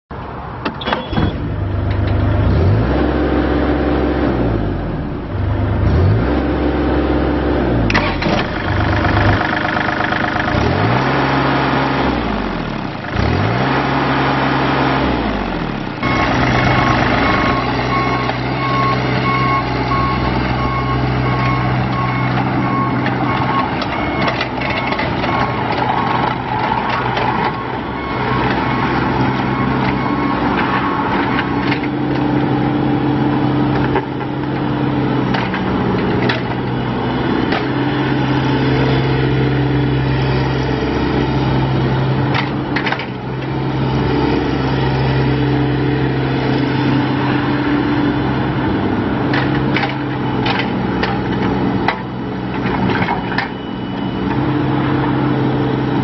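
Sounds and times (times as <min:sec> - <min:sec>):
excavator diesel engine running: 0:00.4 - 0:56.0
machine alarm beeping: 0:16.0 - 0:26.2, 0:53.2 - 0:54.4.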